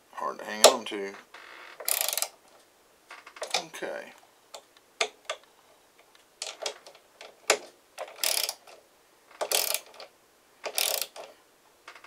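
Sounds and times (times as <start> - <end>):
ratchet socket wrench clicking: 1.8 - 2.3, 8.0 - 8.6, 9.4 - 10.0, 10.6 - 11.2.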